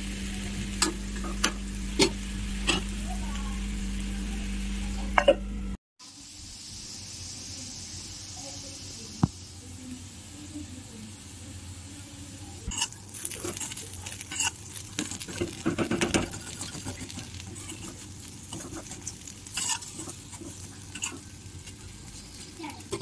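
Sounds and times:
potato slices sizzling in oil: 0.0 - 5.1, 6.0 - 23.0
utensil scraping and clinking pan: 12.7 - 21.3.

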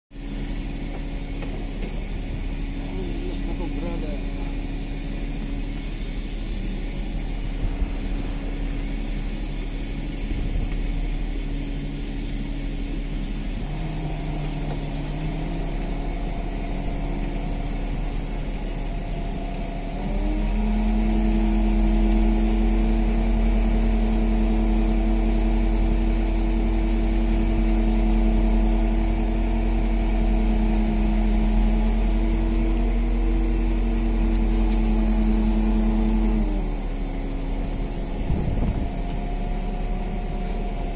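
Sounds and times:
boat engine and machinery hum: 0.1 - 40.9.

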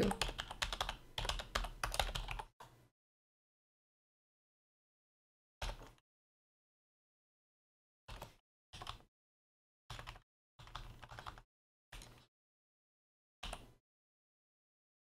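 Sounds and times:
keyboard typing: 0.0 - 2.5, 8.1 - 9.1, 9.9 - 11.4, 13.4 - 13.8.

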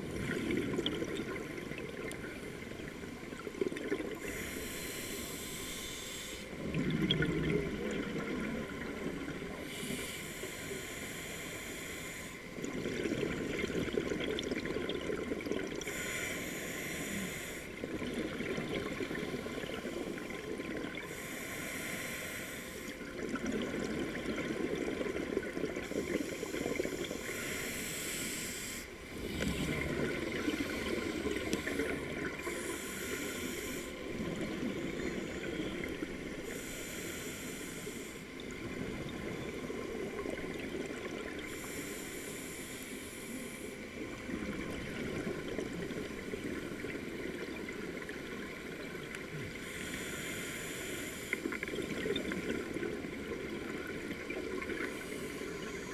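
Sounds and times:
regulator inhale hiss: 4.1 - 6.6, 8.8 - 12.7, 15.8 - 17.9, 21.0 - 23.1, 25.8 - 38.5, 41.3 - 44.0, 49.3 - 51.8, 54.5 - 55.9
exhaled bubbles rushing: 6.6 - 8.7.

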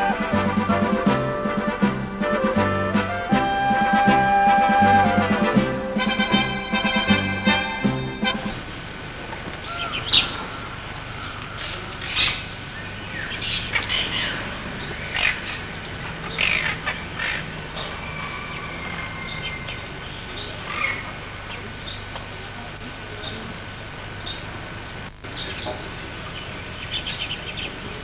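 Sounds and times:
birds squawking and chirping: 6.2 - 23.6.

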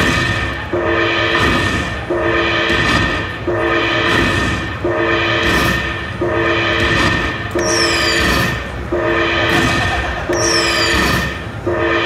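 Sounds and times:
background din: 0.0 - 12.0
horn-like slot machine chord: 8.9 - 9.6.

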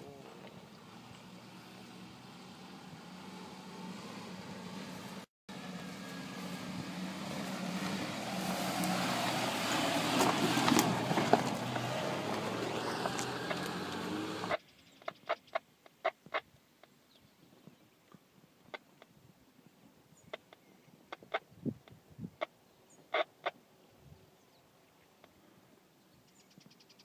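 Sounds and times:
car engine under load: 0.0 - 14.6.

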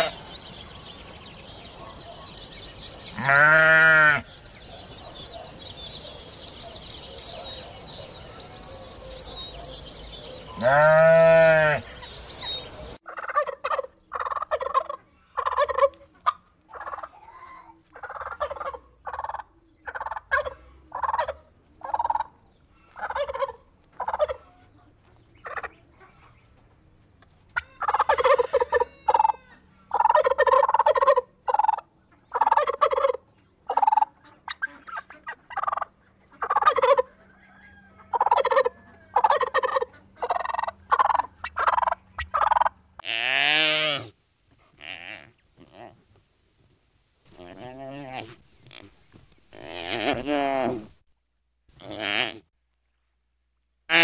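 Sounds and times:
sheep bleating: 3.1 - 4.3, 10.6 - 11.9, 43.0 - 44.1
turkeys gobbling: 12.8 - 17.3, 17.9 - 24.6, 25.4 - 25.8, 27.6 - 42.8.

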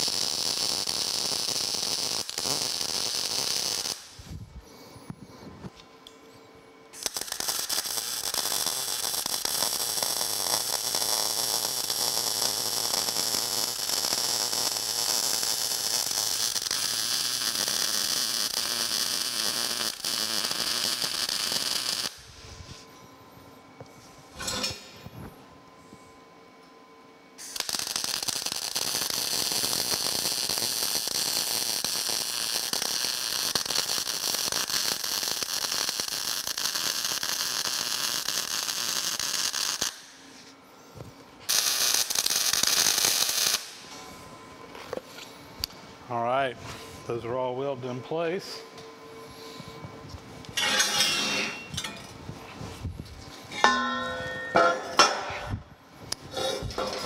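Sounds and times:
welding arc crackling: 0.0 - 4.5, 6.9 - 22.4, 27.4 - 40.5, 41.4 - 43.9.

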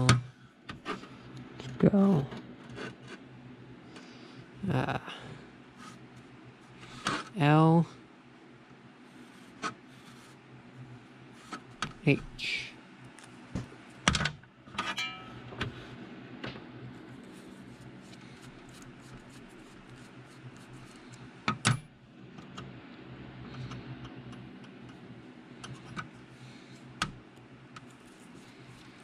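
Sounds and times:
faint steady hum: 0.0 - 29.0
short metallic ring: 14.9 - 15.5.

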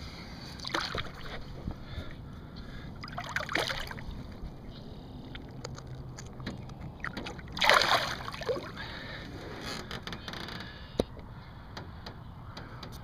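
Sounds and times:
water sloshing and splashing: 0.5 - 2.1, 3.0 - 10.0
fish splashing: 0.6 - 1.4, 3.0 - 4.4, 5.2 - 9.1.

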